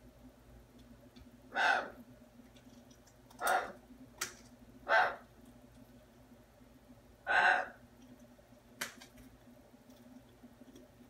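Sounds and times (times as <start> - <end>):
parrot calls: 1.5 - 2.0, 3.4 - 3.8, 4.8 - 5.3, 7.2 - 7.8.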